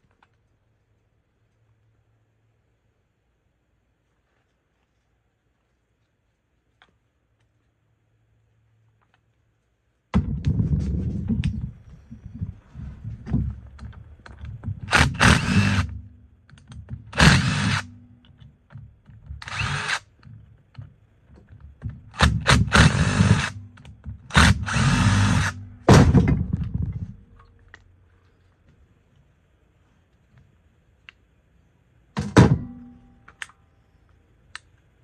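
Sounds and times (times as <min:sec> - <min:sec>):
cordless power driver spinning: 0:14.8 - 0:16.0, 0:17.1 - 0:17.9, 0:19.4 - 0:20.2, 0:22.1 - 0:25.6.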